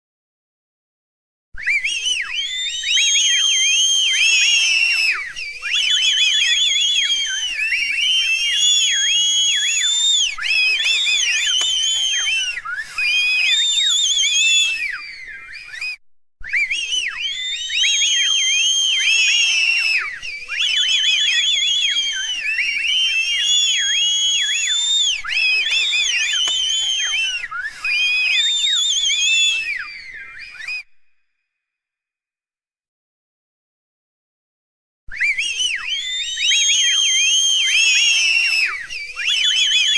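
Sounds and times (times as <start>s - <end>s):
crowd whistling: 1.6s - 31.3s, 35.1s - 39.9s.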